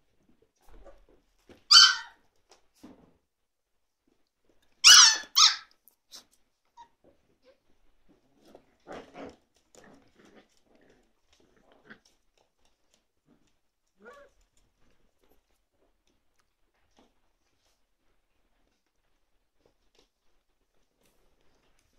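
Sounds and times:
puppies yelping: 0:01.7 - 0:02.1, 0:04.8 - 0:05.6
puppies growling: 0:08.1 - 0:12.2.

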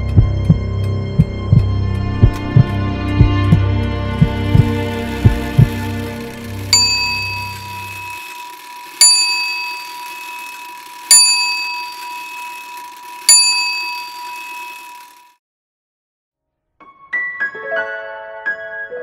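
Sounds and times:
low throbbing: 0:00.0 - 0:08.2
high bell ringing: 0:06.4 - 0:15.4.

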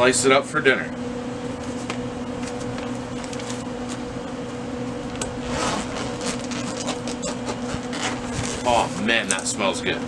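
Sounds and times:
steady mechanical hum: 0:00.0 - 0:10.0
fabric rustling: 0:05.4 - 0:08.9.

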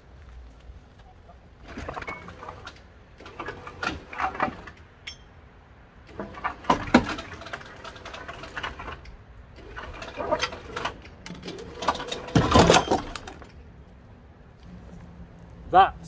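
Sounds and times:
metal scraping and clanking: 0:01.6 - 0:05.4, 0:06.0 - 0:13.6.

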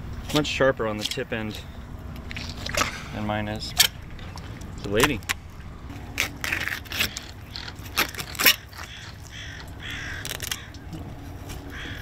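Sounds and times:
bird calling: 0:07.0 - 0:11.0, 0:11.6 - 0:12.0.

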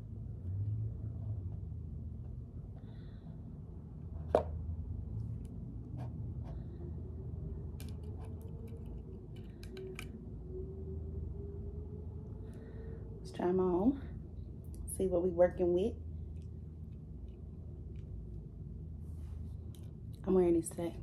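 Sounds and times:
low room hum: 0:00.0 - 0:21.0.

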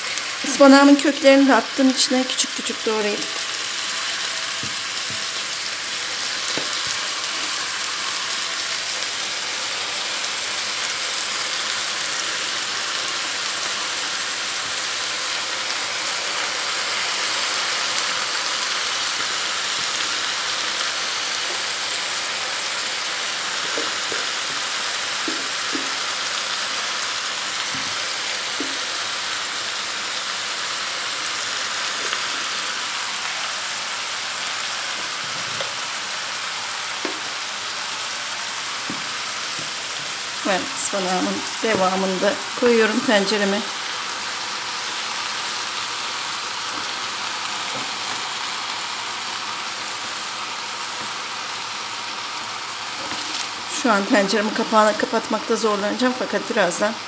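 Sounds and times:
spinach sizzling in hot oil: 0:00.0 - 0:57.0.

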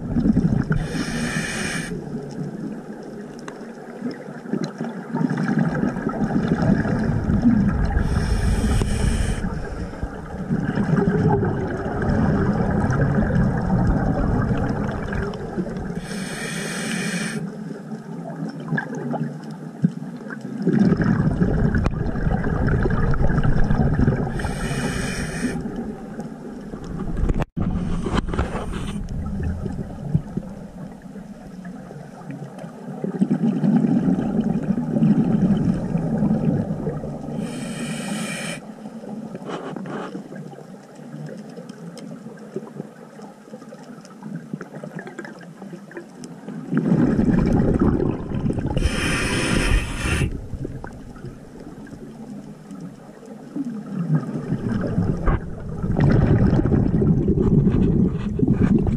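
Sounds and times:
rumbling exhaled bubbles: 0:00.0 - 0:03.0, 0:04.0 - 0:16.4, 0:20.5 - 0:37.9, 0:46.5 - 0:58.9
regulator hissing inhalation: 0:00.8 - 0:02.0, 0:08.0 - 0:09.9, 0:16.0 - 0:17.5, 0:24.4 - 0:25.7, 0:37.4 - 0:38.7, 0:48.8 - 0:50.4.

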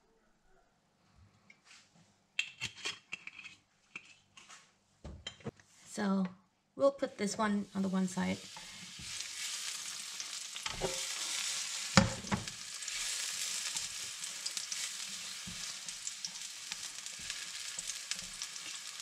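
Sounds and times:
mushrooms sizzling in frying pan: 0:07.7 - 0:19.0.

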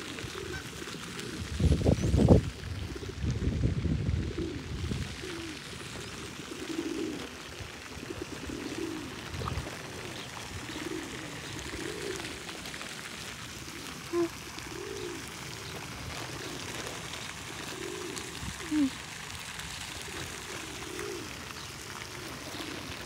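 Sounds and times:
pigeons cooing: 0:00.0 - 0:23.0.

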